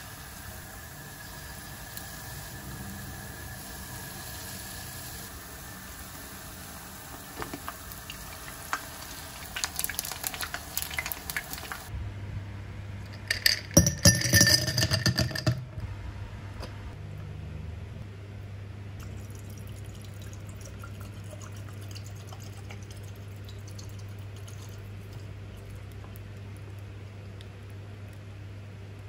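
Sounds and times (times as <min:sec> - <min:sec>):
fritters sizzling in oil: 0:00.0 - 0:11.9
clinks on glass: 0:13.3 - 0:15.6.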